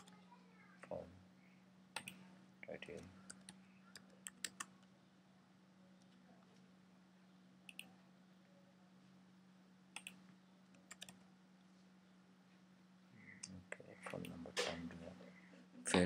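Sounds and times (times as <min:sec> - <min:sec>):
low steady hum: 0:00.0 - 0:16.0
computer keyboard keystrokes: 0:10.8 - 0:11.2.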